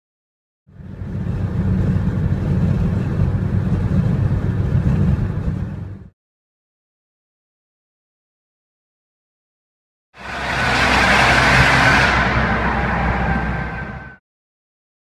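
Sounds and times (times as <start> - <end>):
car interior road rumble: 0.7 - 6.1.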